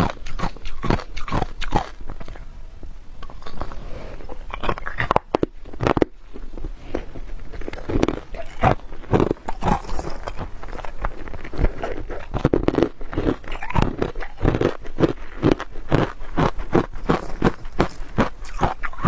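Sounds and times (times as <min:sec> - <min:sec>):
person chewing crunchy frost: 0:00.0 - 0:02.5, 0:03.2 - 0:19.0.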